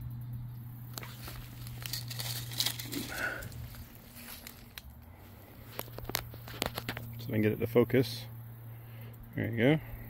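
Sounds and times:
dry leaves crackling: 0.8s - 7.2s.

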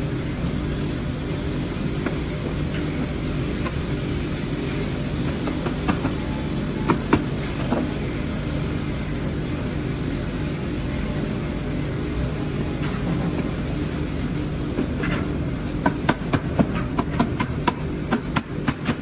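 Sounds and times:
low machine drone: 0.0s - 19.0s.

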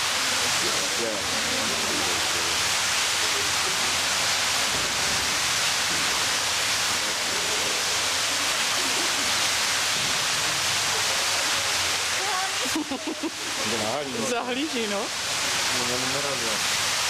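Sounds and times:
murmur of voices: 0.0s - 17.0s
steady rushing hiss: 0.0s - 17.0s.

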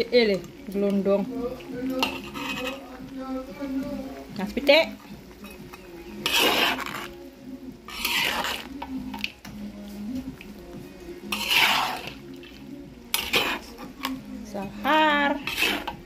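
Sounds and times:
metal spatula scraping wok: 1.8s - 3.8s, 5.2s - 7.2s, 7.8s - 9.2s, 11.2s - 16.0s.

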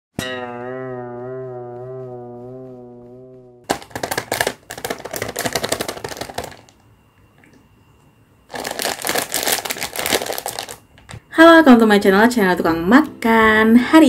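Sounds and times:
plastic packet crinkling: 3.7s - 6.8s, 8.5s - 11.2s.

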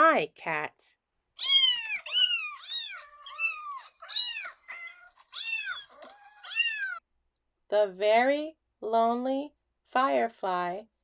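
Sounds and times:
cats meowing: 1.4s - 7.0s.

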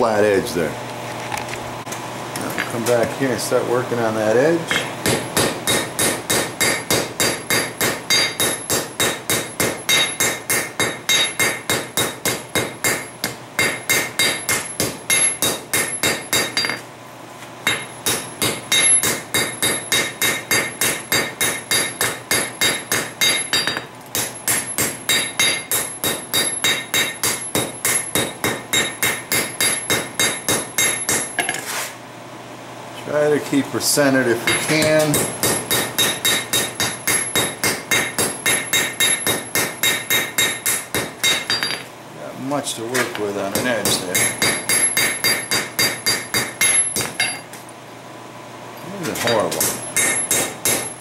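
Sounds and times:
hammer blows ringing on anvil: 4.7s - 16.8s, 17.7s - 31.6s, 34.4s - 41.9s, 43.5s - 47.5s, 49.2s - 51.0s.

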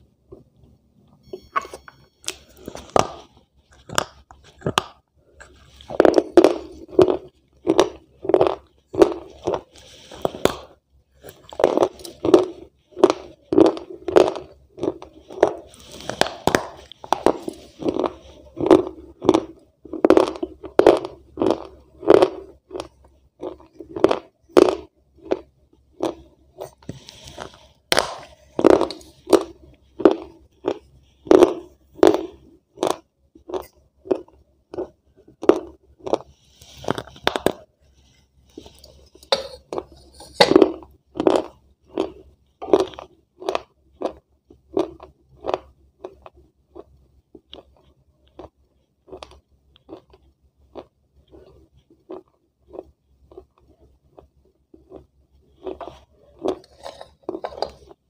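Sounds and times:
person chewing crunchy food: 1.3s - 58.0s.

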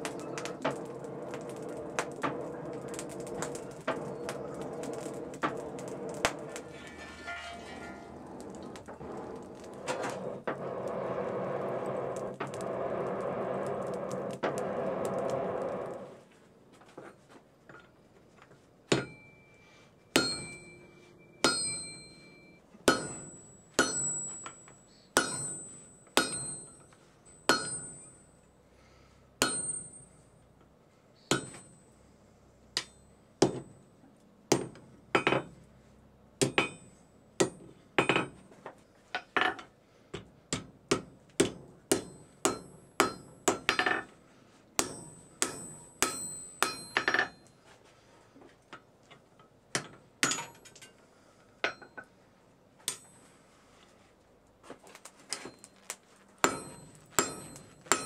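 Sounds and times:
hammer striking metal on anvil: 18.9s - 26.8s, 27.4s - 28.3s, 29.4s - 30.2s, 31.3s - 31.8s, 36.4s - 38.4s, 40.5s - 44.1s, 44.8s - 47.5s, 49.8s - 50.9s, 56.4s - 58.0s.

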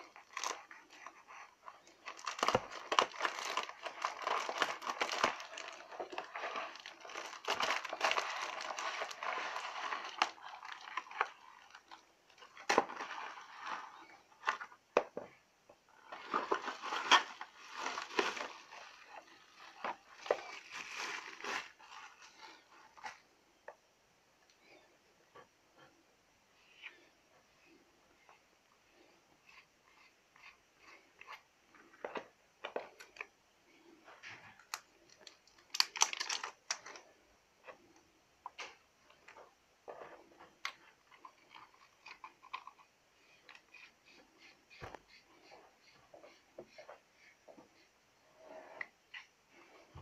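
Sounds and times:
plastic bag crinkling: 2.0s - 14.1s, 16.1s - 23.2s, 34.7s - 37.0s.

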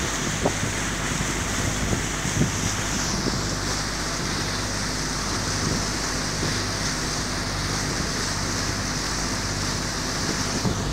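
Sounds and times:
boat engine hum: 0.0s - 10.9s
water rushing past hull: 0.0s - 10.9s
wind on microphone: 0.0s - 10.9s.

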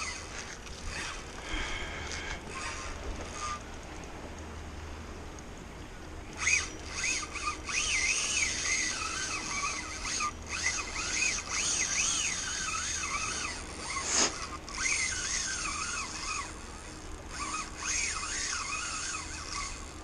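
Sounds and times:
fishing reel whirring: 0.0s - 5.5s, 6.2s - 20.0s
hiss: 14.0s - 14.4s.

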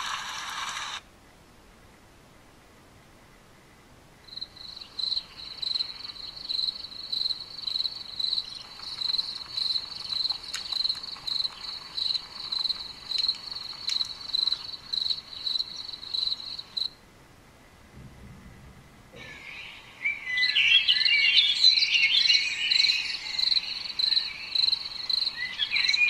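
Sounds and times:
crickets chirping: 4.3s - 17.0s, 20.4s - 26.0s
faint clicks: 8.5s - 14.8s.

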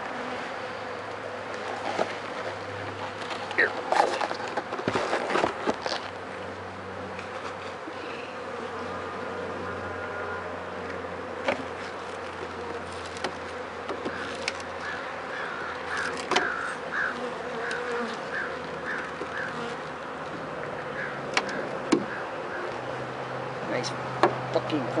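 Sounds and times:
honeybees buzzing: 0.0s - 25.0s
hive tool knocking on wood: 24.2s - 24.4s.

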